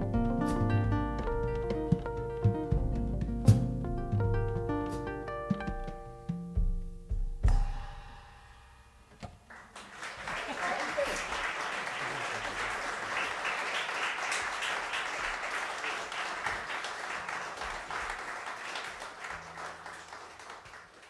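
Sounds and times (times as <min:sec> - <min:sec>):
audience applauding: 0:09.5 - 0:21.0.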